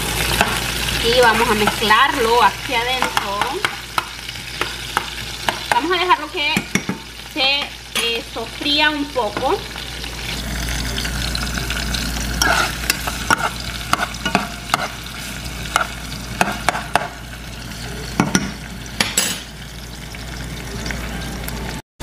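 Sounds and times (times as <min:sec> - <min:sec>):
vegetables sizzling in oil: 0:00.0 - 0:21.8
metal spoon scraping pan: 0:12.4 - 0:16.6.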